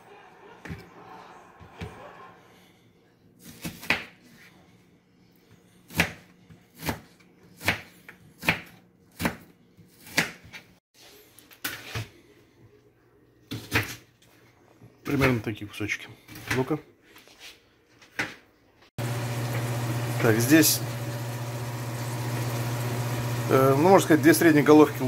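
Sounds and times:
knife chopping on cutting board: 0:06.8 - 0:10.6.

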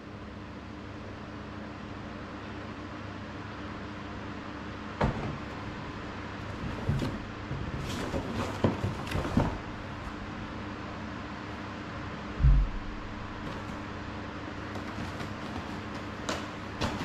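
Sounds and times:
cardboard rustling: 0:05.0 - 0:10.4, 0:13.3 - 0:17.0
cardboard box knocks and scrapes: 0:06.4 - 0:09.6.

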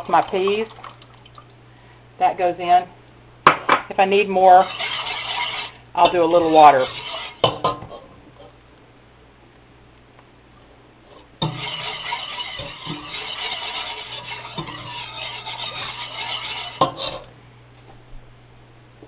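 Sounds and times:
wire whisk scraping a pot: 0:04.4 - 0:07.6, 0:11.4 - 0:17.3.

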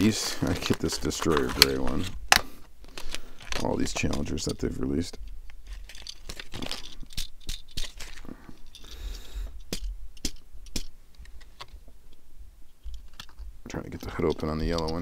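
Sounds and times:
toy cars clicking and tapping: 0:05.7 - 0:08.9, 0:09.7 - 0:10.9.

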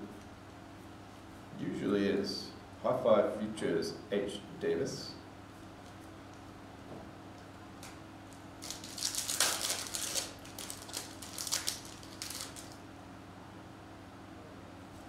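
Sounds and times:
foil wrapper crinkling: 0:08.3 - 0:12.8.

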